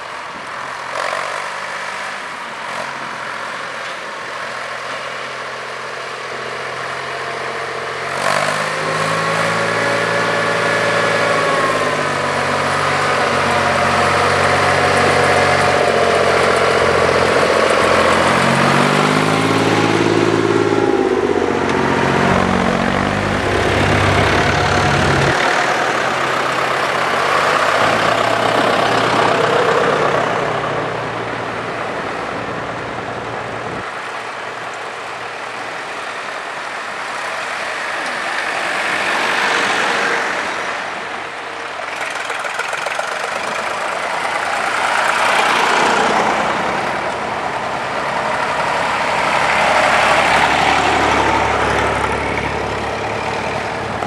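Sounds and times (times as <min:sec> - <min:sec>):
tractors driving past: 0:00.0 - 0:54.0
steady tractor engine note: 0:05.4 - 0:33.8, 0:41.6 - 0:54.0.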